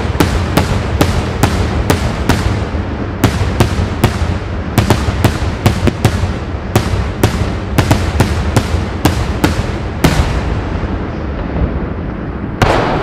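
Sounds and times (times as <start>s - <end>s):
fireworks bangs: 0.0s - 13.0s
low rumble: 0.0s - 13.0s.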